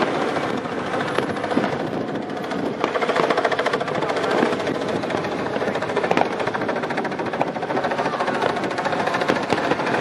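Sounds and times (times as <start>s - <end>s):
fireworks crackling: 0.0s - 10.0s.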